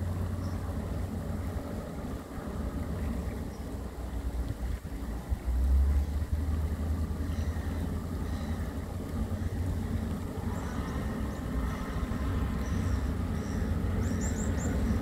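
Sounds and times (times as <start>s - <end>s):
low engine drone across water: 0.0s - 15.0s
wind rumble on microphone: 0.0s - 15.0s.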